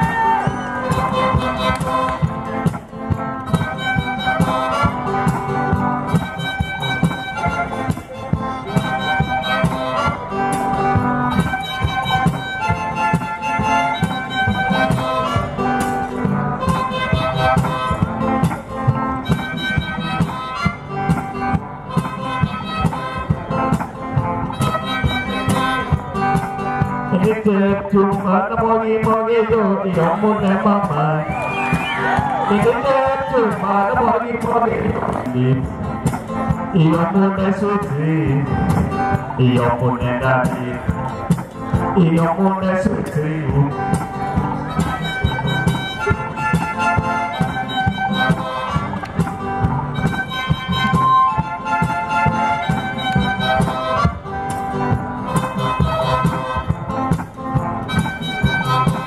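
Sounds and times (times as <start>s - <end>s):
guitar playing: 0.0s - 59.0s
steady drum beat: 0.0s - 59.0s.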